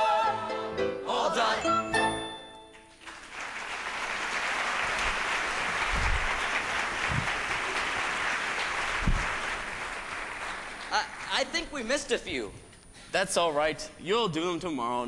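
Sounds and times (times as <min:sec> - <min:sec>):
audience applauding: 0:02.9 - 0:11.9.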